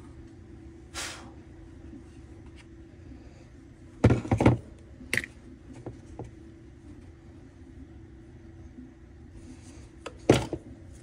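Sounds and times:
steady low hum: 0.0 - 11.0
parts knocking and clattering: 4.0 - 6.3, 10.2 - 10.7.

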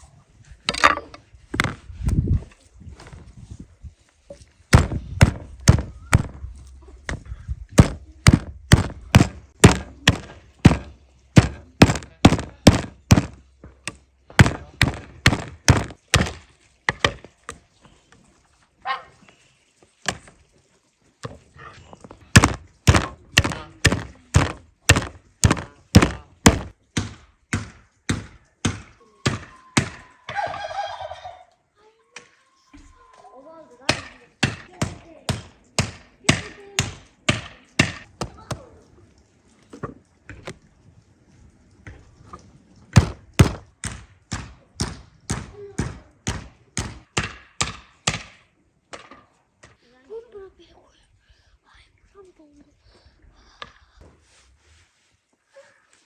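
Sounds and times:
heavy chopping strikes: 4.7 - 6.4, 7.1 - 17.3, 22.3 - 30.0, 42.9 - 49.2.

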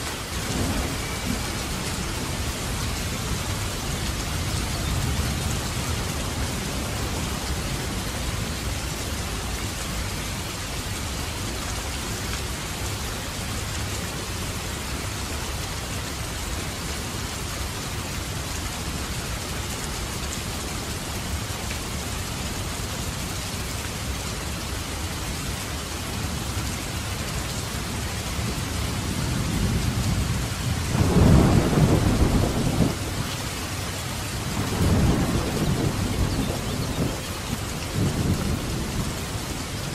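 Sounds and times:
steady rain falling: 0.0 - 39.9
thunder rumbling: 0.3 - 8.6, 29.0 - 39.9.

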